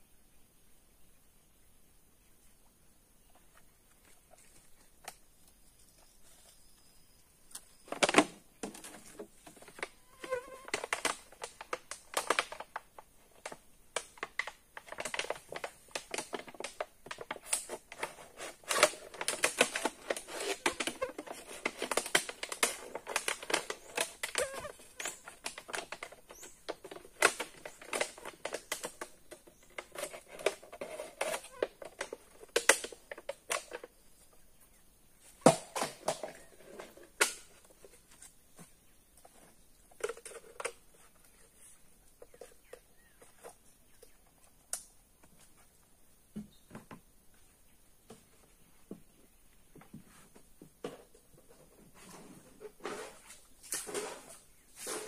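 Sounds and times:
plastic bag crinkling: 14.3s - 32.9s.

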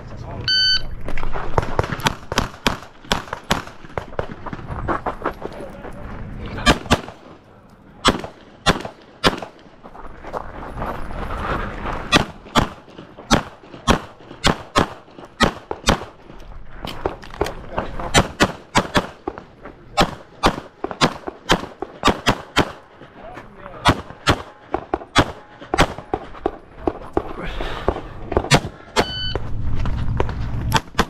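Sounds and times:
pistol shots: 1.6s - 4.3s, 6.7s - 7.2s, 8.0s - 9.6s, 12.1s - 16.2s, 18.0s - 22.9s, 23.8s - 27.3s, 27.9s - 29.1s.

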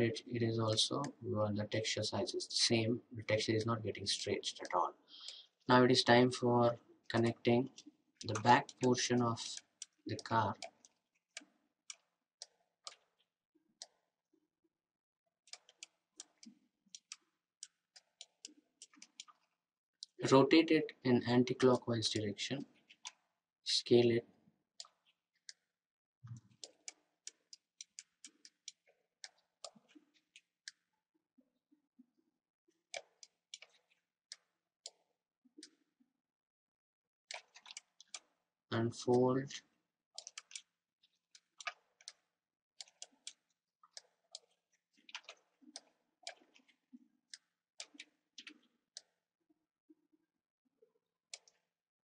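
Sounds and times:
computer mouse clicks: 7.2s - 13.2s, 15.5s - 20.2s, 21.7s - 23.3s, 24.8s - 25.7s, 26.3s - 30.9s, 32.9s - 35.0s, 37.3s - 38.4s, 39.5s - 49.2s, 51.3s - 51.7s.

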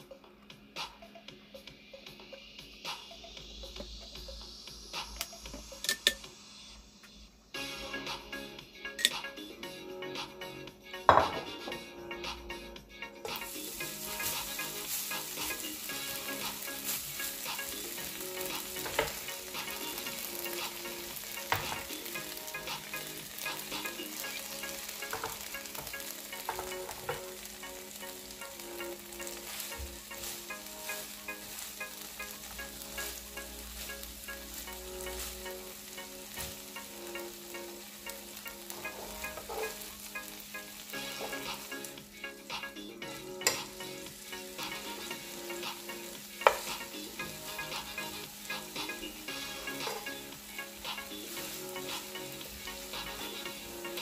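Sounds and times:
fish sizzling in hot oil: 13.3s - 42.5s, 43.4s - 54.0s.

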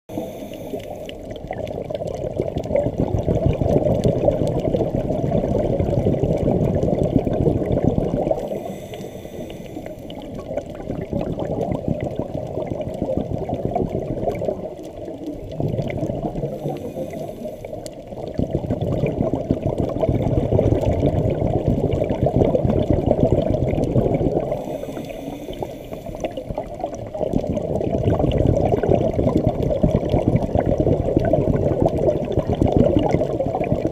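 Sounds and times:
diver inhaling through regulator: 0.1s - 1.3s, 8.3s - 10.4s, 16.4s - 17.9s, 24.4s - 26.5s
exhaled bubbles underwater: 0.1s - 33.9s.

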